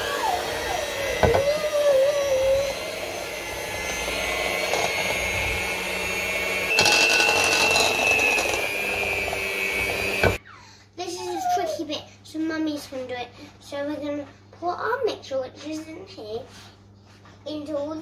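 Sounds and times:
electric hand mixer whirring: 0:00.0 - 0:10.4.

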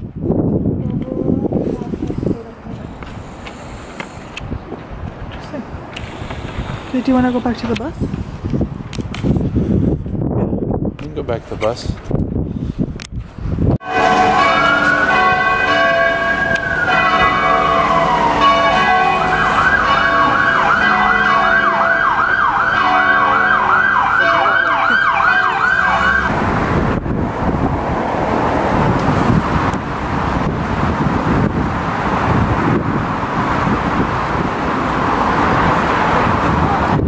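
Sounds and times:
traffic noise: 0:00.0 - 0:37.0
emergency vehicle siren: 0:13.8 - 0:27.1.

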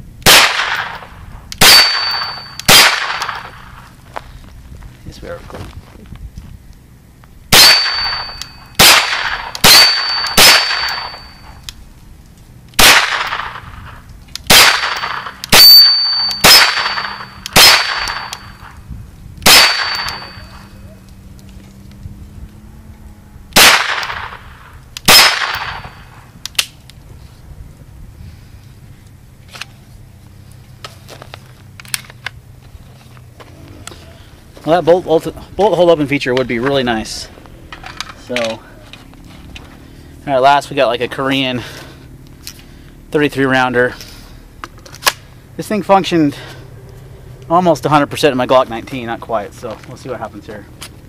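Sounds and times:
gunshots with ringing tail: 0:00.2 - 0:03.9, 0:07.5 - 0:11.6, 0:12.8 - 0:18.8, 0:19.4 - 0:20.8, 0:23.5 - 0:26.3.

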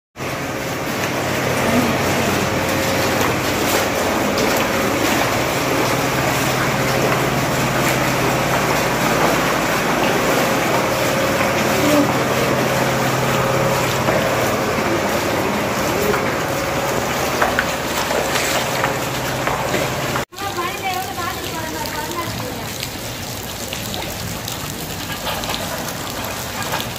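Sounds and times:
low mechanical hum: 0:00.2 - 0:20.3
feet splashing through water: 0:00.2 - 0:26.9.

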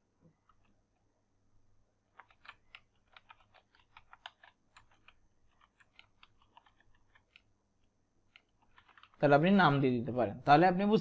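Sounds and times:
typing on computer keyboard: 0:02.1 - 0:07.6, 0:08.2 - 0:09.8.

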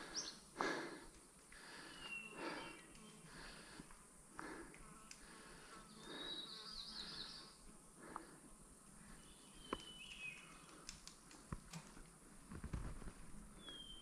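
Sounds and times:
rider breathing: 0:00.0 - 0:13.8
bike clicks: 0:03.8 - 0:05.4, 0:09.6 - 0:13.0.

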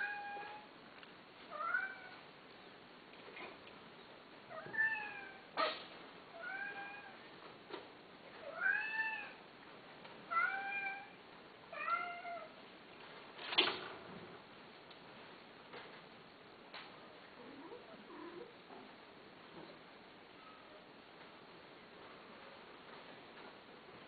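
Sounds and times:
cat meowing: 0:08.5 - 0:09.4, 0:10.3 - 0:11.2.

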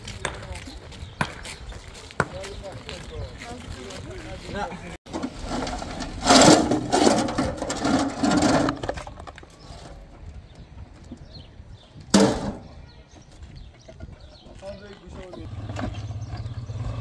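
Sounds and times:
wheelbarrow clank: 0:05.1 - 0:09.4, 0:12.1 - 0:12.7.

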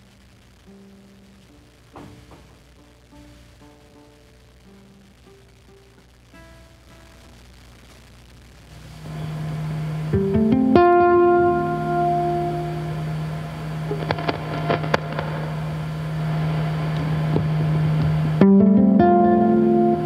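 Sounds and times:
amplified ukulele notes: 0:09.9 - 0:15.9, 0:16.5 - 0:20.0
effects pedal clicks: 0:13.8 - 0:15.6.

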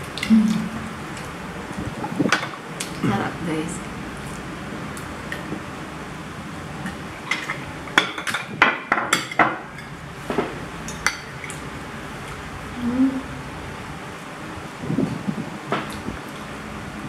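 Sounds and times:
cutlery clinking on ceramic plates: 0:07.3 - 0:09.9.

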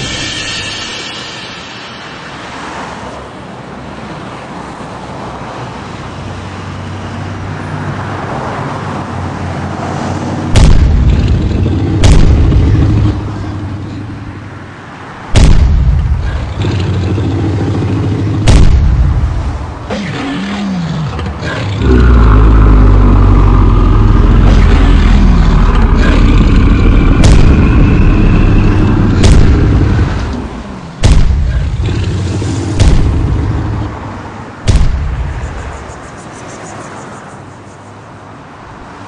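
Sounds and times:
steady rumbling: 0:00.0 - 0:02.4, 0:10.4 - 0:14.7, 0:15.3 - 0:36.6
heavy explosion booms: 0:10.5 - 0:13.5, 0:15.3 - 0:33.9, 0:34.6 - 0:35.6.

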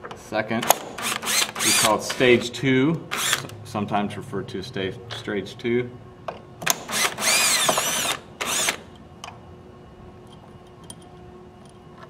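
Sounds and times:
cordless drill running: 0:00.8 - 0:02.2, 0:03.1 - 0:03.6, 0:06.7 - 0:08.9.

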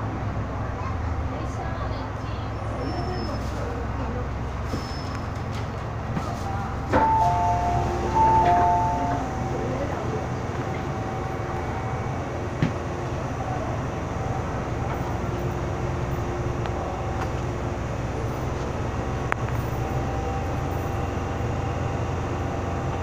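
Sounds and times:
train equipment hum: 0:00.0 - 0:23.0.

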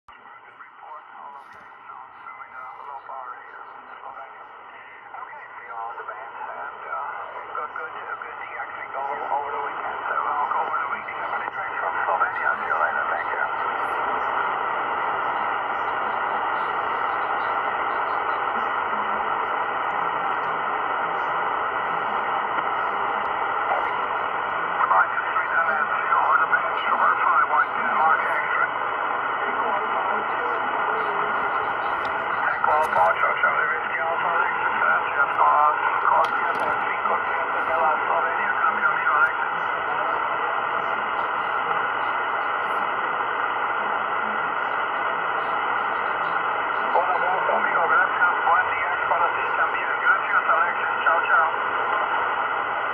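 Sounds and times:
radio band noise hiss: 0:00.1 - 0:52.9.

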